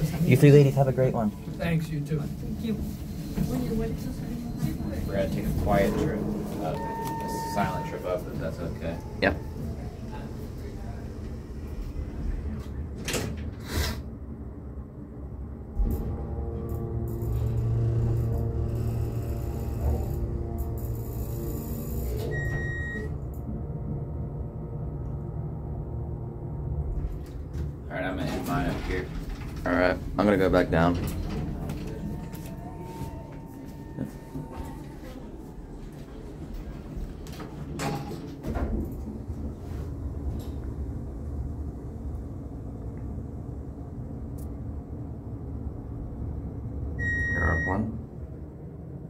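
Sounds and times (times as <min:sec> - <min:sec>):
elevator low rumble: 0:00.0 - 0:49.0
short beep: 0:06.6 - 0:08.4, 0:22.2 - 0:23.1, 0:47.0 - 0:48.0.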